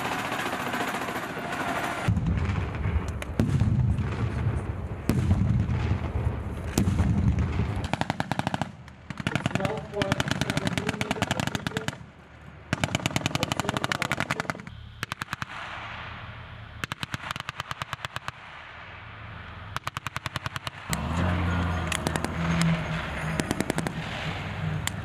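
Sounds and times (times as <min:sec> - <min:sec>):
automatic machine-gun fire: 0:00.0 - 0:02.8, 0:06.8 - 0:12.0, 0:12.7 - 0:15.8, 0:16.8 - 0:18.4, 0:19.8 - 0:20.9, 0:23.4 - 0:24.1
armored vehicle engine: 0:00.0 - 0:03.4, 0:09.3 - 0:17.1, 0:18.9 - 0:25.0.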